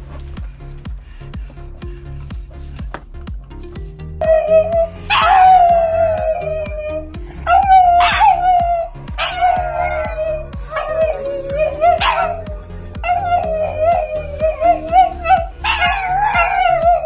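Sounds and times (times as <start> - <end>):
background music with a beat: 0.0 - 17.0
dogs howling: 4.2 - 17.0.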